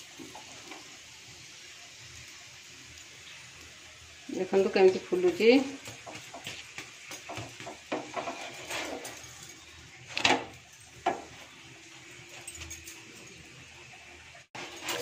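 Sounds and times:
spatula scraping frying pan: 5.0s - 12.2s, 14.5s - 15.0s.

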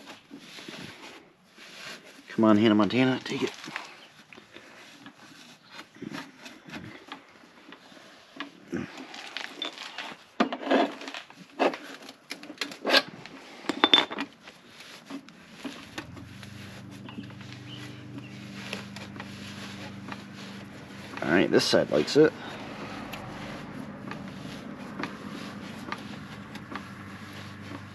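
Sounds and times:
packing material rubbing and scraping: 0.0s - 13.6s, 14.3s - 27.9s
low steady hum: 15.3s - 27.9s.

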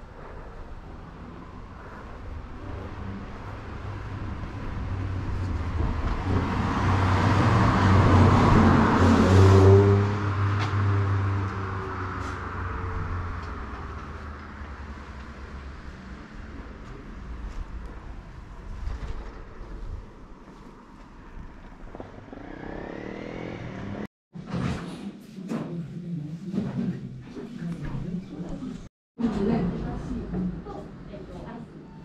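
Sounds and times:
vehicle driving past: 0.2s - 24.1s.

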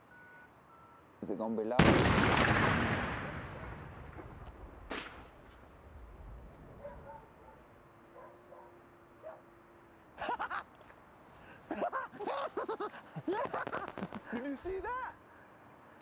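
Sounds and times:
explosion rumble: 1.8s - 5.3s.

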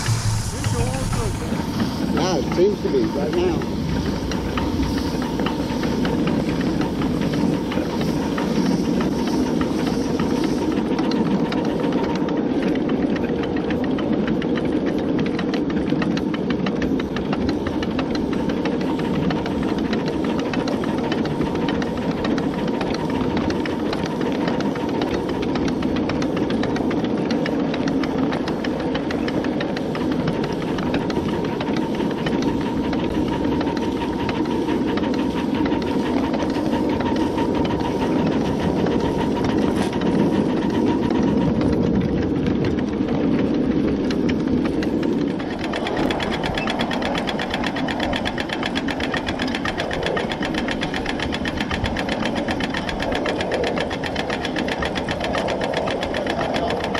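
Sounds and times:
steam hissing: 0.0s - 56.9s
wheels clattering on rails: 0.0s - 56.9s.

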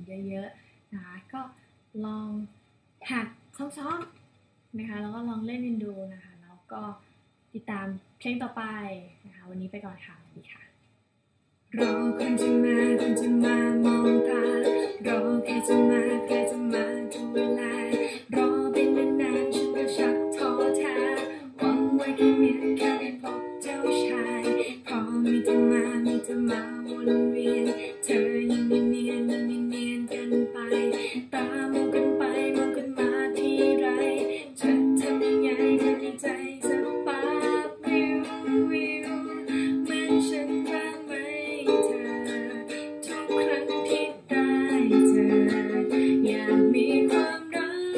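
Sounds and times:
ukulele strumming: 11.8s - 47.9s.

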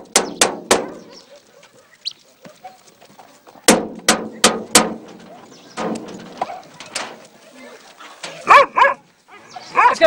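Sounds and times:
stick knocking on metal door: 3.7s - 5.2s.

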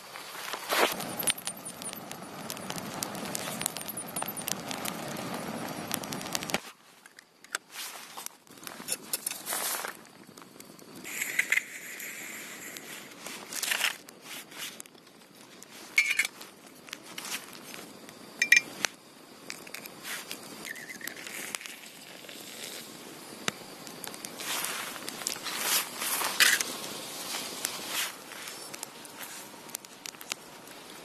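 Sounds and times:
metallic clinks: 18.4s - 18.7s.

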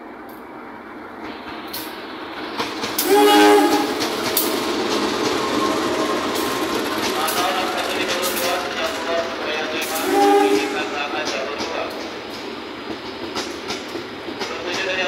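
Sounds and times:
locomotive engine rumble: 1.0s - 15.0s
wheels clattering over rail joints: 1.3s - 10.0s
train horn blast: 3.0s - 4.0s, 9.8s - 11.0s.

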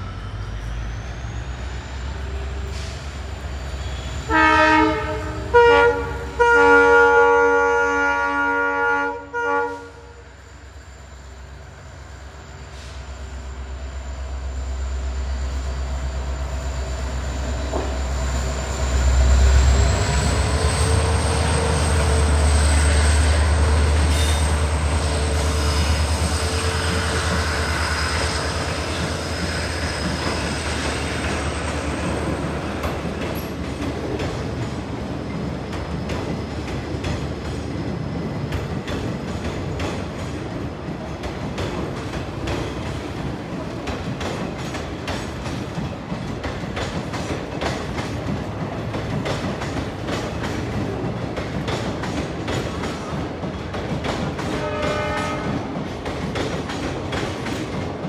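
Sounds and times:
diesel locomotive engine rumbling: 0.0s - 58.0s
train coaches rolling by: 0.0s - 58.0s
locomotive horn blasts: 4.3s - 10.2s, 54.5s - 55.6s.

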